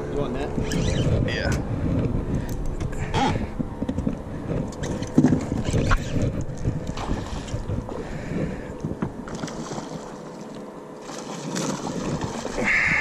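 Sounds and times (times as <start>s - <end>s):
wind buffeting microphone: 0.0s - 9.3s
water sloshing around boat: 0.0s - 13.0s.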